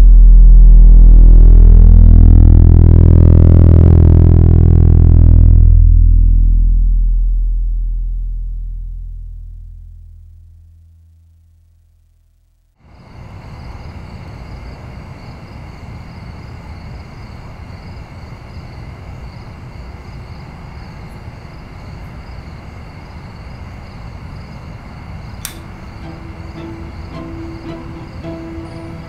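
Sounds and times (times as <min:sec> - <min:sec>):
steady low rumbling: 0:00.0 - 0:12.7
sharp click: 0:25.4 - 0:25.7.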